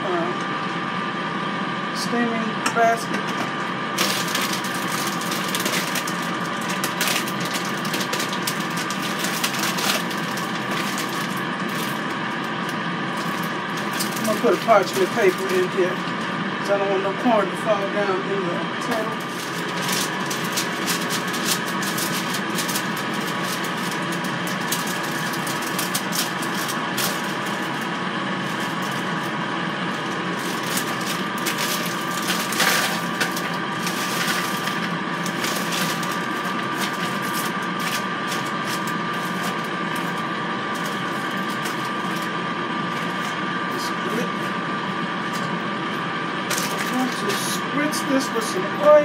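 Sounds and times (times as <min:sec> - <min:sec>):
air fryer fan hum: 0:00.0 - 0:49.0
paper and bag rustling: 0:04.0 - 0:12.2, 0:13.1 - 0:16.0, 0:19.1 - 0:42.3, 0:46.5 - 0:47.4.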